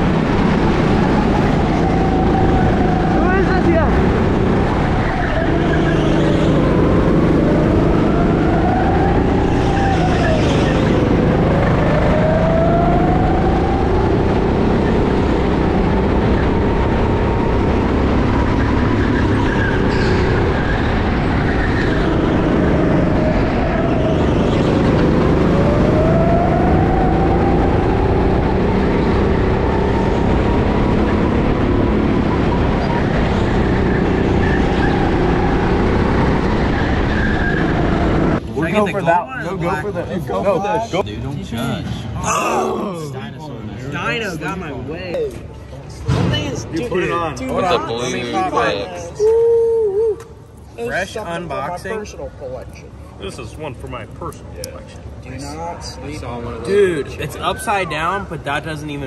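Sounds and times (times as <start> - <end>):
go-kart motor running: 0.0 - 38.8.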